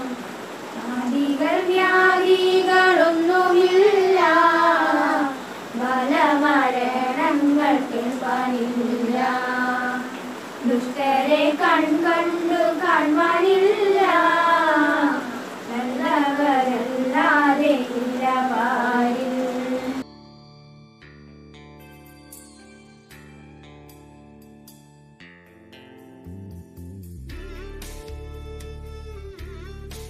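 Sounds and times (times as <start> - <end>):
women and girls singing in unison: 0.0 - 20.0.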